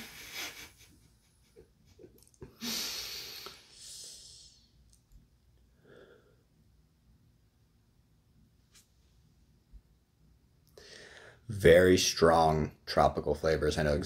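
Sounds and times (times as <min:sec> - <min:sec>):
person exhaling vapor: 0:02.6 - 0:04.7.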